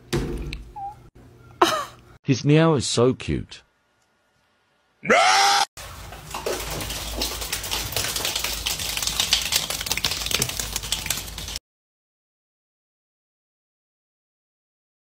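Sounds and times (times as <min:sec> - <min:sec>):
penguin feet pattering on wet floor: 0:05.8 - 0:11.6.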